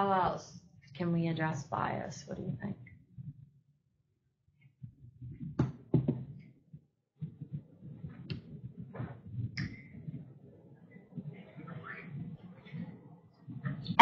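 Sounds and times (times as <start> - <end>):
sharp knocks: 5.4 - 6.3
low muffled murmur: 7.9 - 14.0.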